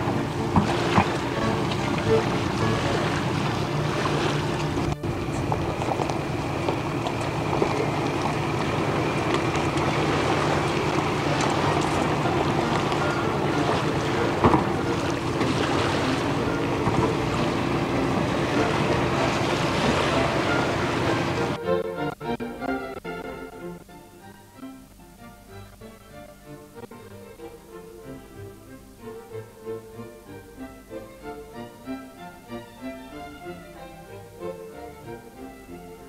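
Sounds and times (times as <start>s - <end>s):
vehicles boarding over ramp: 0.0s - 21.6s
ferry engine drone: 0.0s - 36.0s.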